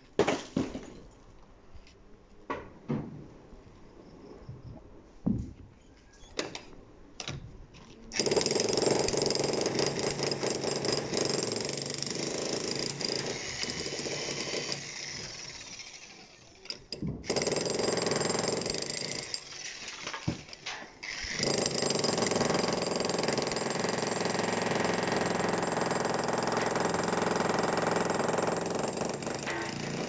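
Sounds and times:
demolition hammer pounding concrete: 0:08.2 - 0:15.6, 0:16.9 - 0:19.4, 0:21.2 - 0:30.0.

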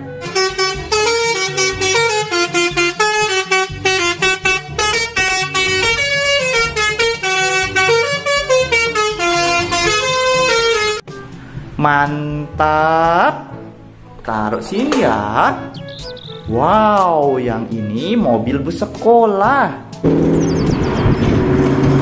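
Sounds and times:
bus horns playing a jingle: 0:00.0 - 0:11.0.

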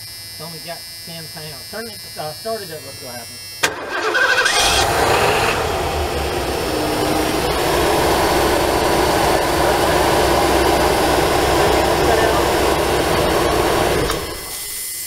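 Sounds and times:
van engine running: 0:03.7 - 0:14.8.

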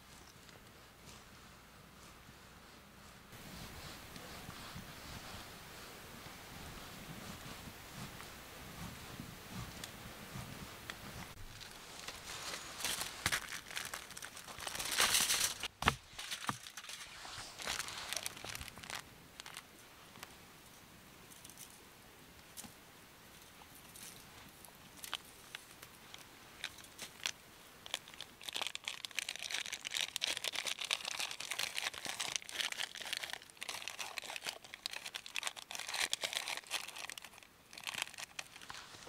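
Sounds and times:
crinkling and rustling handling: 0:07.0 - 0:20.4, 0:22.5 - 0:39.0.

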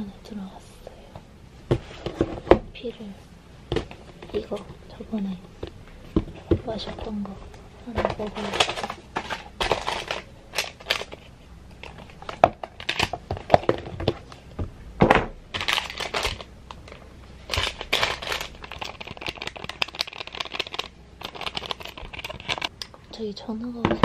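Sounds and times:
coffee packet crinkling: 0:08.2 - 0:11.2, 0:15.6 - 0:22.7.

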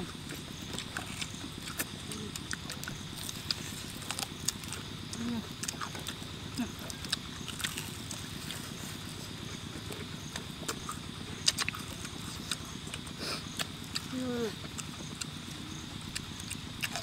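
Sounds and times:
people chewing food: 0:00.0 - 0:17.0
lip smacks and crunches: 0:00.2 - 0:06.3, 0:09.9 - 0:14.1, 0:16.0 - 0:17.0.

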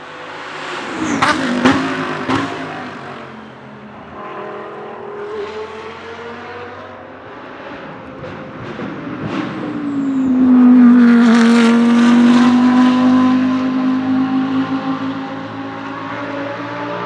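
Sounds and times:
racing car engine passing: 0:00.1 - 0:17.0.

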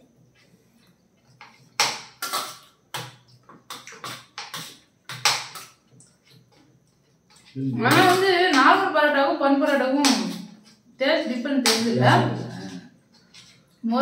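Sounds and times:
cutlery scraping on plates: 0:01.3 - 0:06.6.

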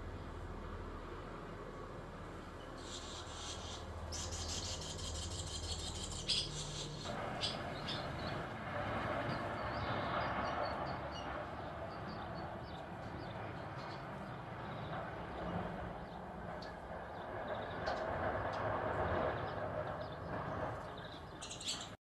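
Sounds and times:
swallows twittering: 0:02.6 - 0:08.5, 0:09.2 - 0:18.0, 0:19.4 - 0:22.0.

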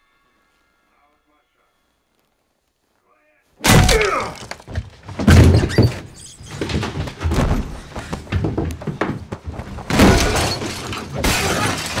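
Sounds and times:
heavy blows and thuds: 0:03.7 - 0:12.0.

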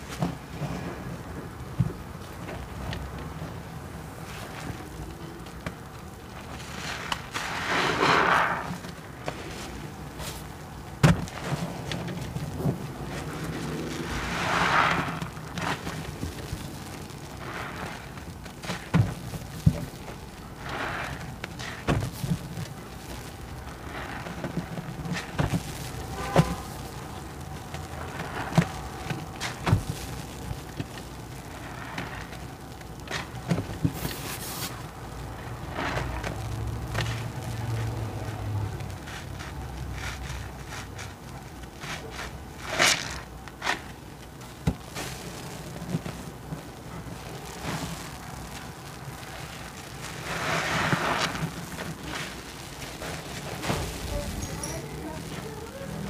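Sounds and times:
wet squelching of soapy suds: 0:20.5 - 0:21.8.

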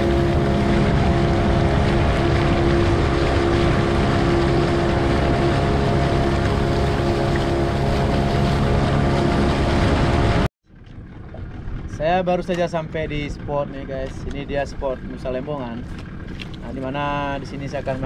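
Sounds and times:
wind and water rushing: 0:00.0 - 0:10.5
boat engine running: 0:00.0 - 0:18.0.

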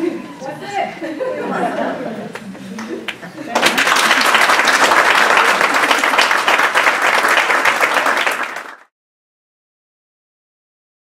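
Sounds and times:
audience applause: 0:03.1 - 0:08.9.

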